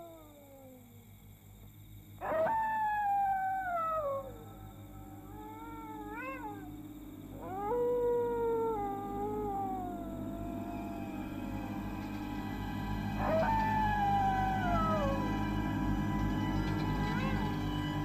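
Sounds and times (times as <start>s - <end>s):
dog howling: 0.0s - 0.9s, 2.2s - 18.0s
steady low hum: 0.0s - 18.0s.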